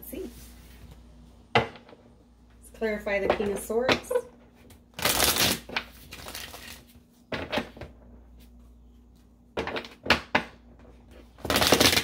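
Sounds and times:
cards being shuffled: 0:05.0 - 0:07.0.

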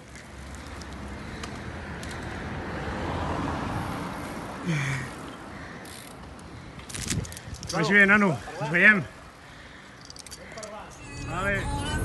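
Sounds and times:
car passing by: 0:00.6 - 0:06.1.

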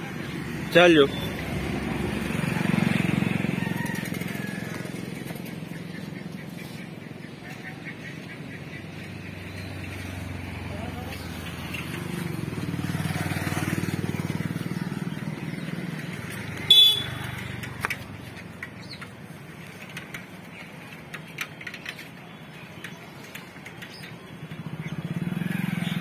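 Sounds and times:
road traffic passing: 0:00.0 - 0:26.0
vehicle horn honk: 0:16.7 - 0:17.2.

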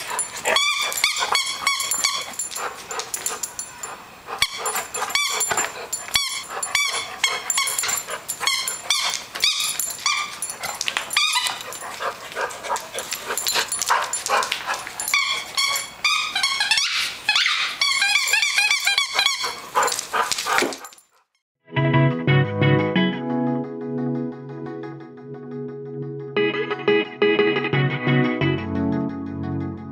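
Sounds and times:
rubber squeaky toy squeaking: 0:00.5 - 0:02.3, 0:04.4 - 0:10.3, 0:15.1 - 0:19.6.

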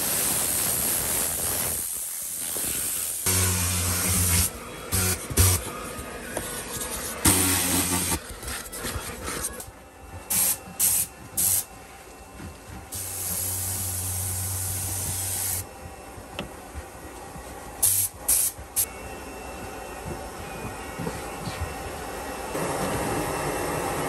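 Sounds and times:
compressed air blow gun hissing: 0:00.0 - 0:04.4.

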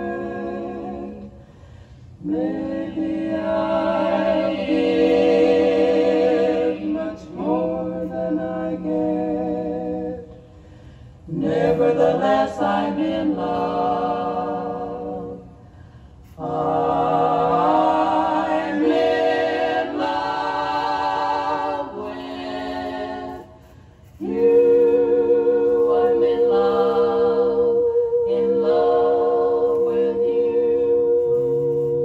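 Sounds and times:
women's vocal quartet singing: 0:00.0 - 0:32.0.

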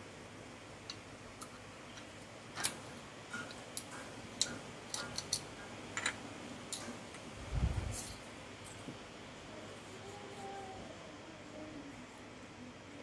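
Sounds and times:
small metal parts clicking: 0:03.5 - 0:06.9, 0:07.9 - 0:08.8.

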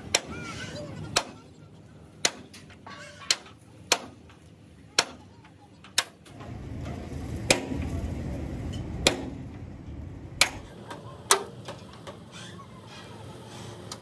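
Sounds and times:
hammer striking steel frame: 0:02.2 - 0:04.4, 0:05.0 - 0:05.2, 0:05.9 - 0:07.9, 0:08.6 - 0:09.6, 0:10.3 - 0:11.8
low rumble: 0:06.3 - 0:10.7.

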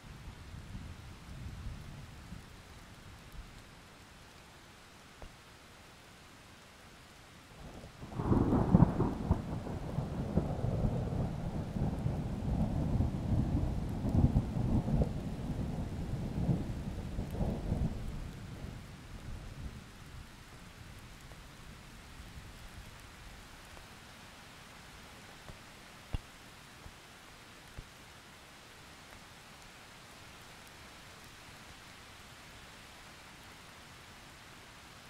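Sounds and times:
steady rain: 0:00.0 - 0:35.0
thunder rumbling: 0:08.0 - 0:18.9.

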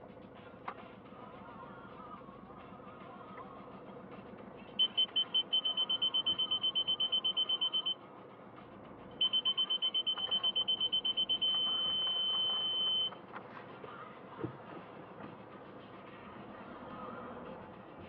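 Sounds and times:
parking sensor beeping: 0:04.8 - 0:08.0, 0:09.2 - 0:13.2.

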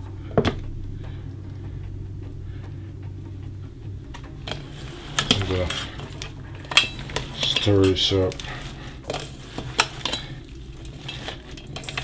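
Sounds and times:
low steady hum: 0:00.0 - 0:12.0
clicks and knocks against pot: 0:04.1 - 0:12.0
hands mixing meat in a pot: 0:04.3 - 0:12.0.

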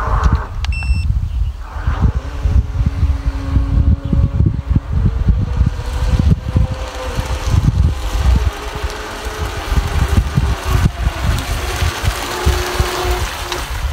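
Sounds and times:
wind buffeting microphone: 0:00.0 - 0:13.9
small electric motor whining: 0:02.1 - 0:13.9.

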